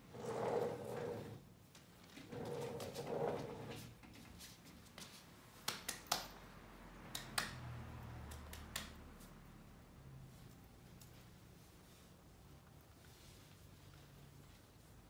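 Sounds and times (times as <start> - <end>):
hands clapping: 5.6 - 6.4, 7.0 - 9.0.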